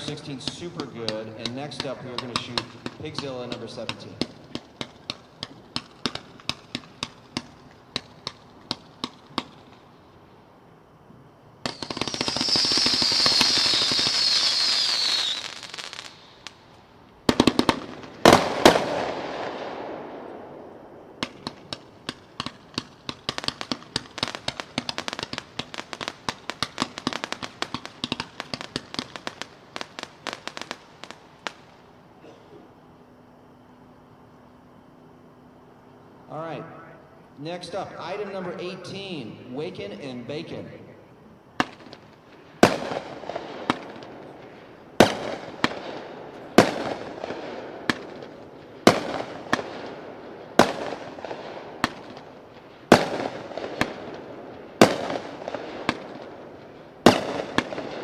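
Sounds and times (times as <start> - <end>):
fireworks shots: 0.0 - 9.9, 11.6 - 32.4, 41.5 - 58.0
loud fireworks bangs: 0.0 - 9.9, 11.6 - 16.6, 17.2 - 32.4, 41.6 - 58.0
hissing crackling fireworks burst: 0.0 - 10.0, 11.6 - 32.3, 41.4 - 58.0
high whine: 32.2 - 42.6.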